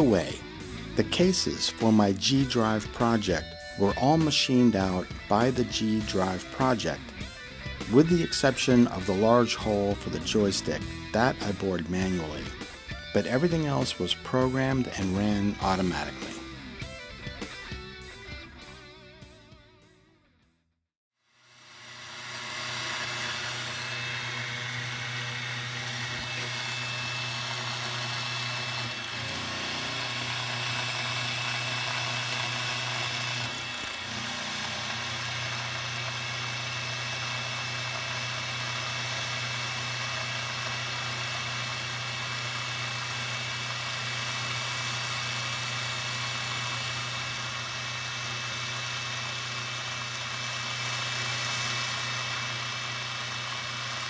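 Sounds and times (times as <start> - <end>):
spindle motor hum: 21.7 - 54.0.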